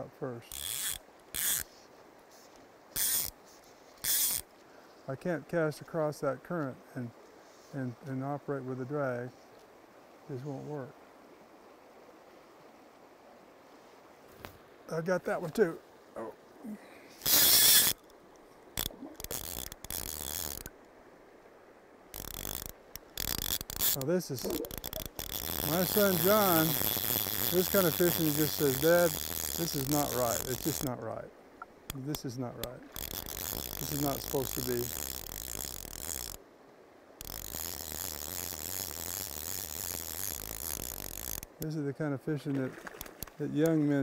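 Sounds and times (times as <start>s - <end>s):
fishing reel clicking: 0.5s - 1.7s, 3.0s - 3.4s, 4.0s - 4.4s, 17.2s - 18.2s, 18.8s - 20.7s, 22.1s - 30.9s, 31.9s - 36.4s, 37.2s - 41.7s.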